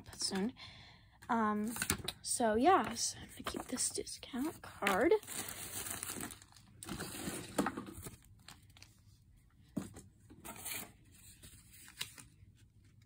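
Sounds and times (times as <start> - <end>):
paper packaging rustling: 4.6 - 9.0, 10.5 - 13.0.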